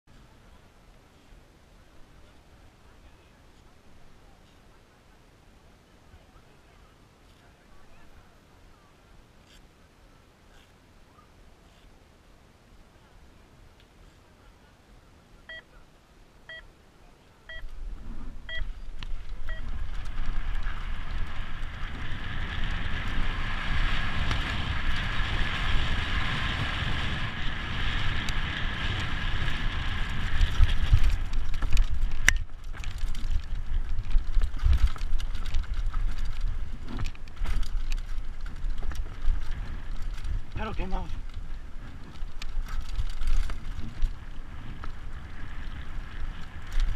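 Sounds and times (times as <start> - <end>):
electronic timer beeping: 17.5 - 17.7
wind on microphone: 17.6 - 46.9
bike tyres rumbling over gravel: 17.8 - 46.9
bike clattering over bumps: 19.0 - 40.6.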